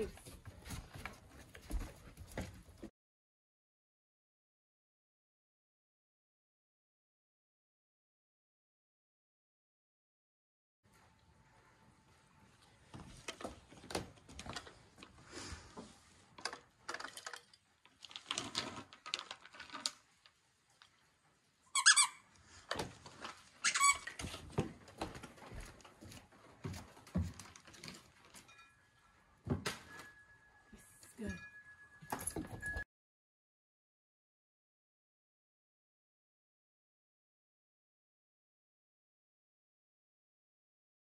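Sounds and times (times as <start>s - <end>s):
squeaky dog toy squeaks: 21.7s - 22.3s, 23.6s - 24.2s.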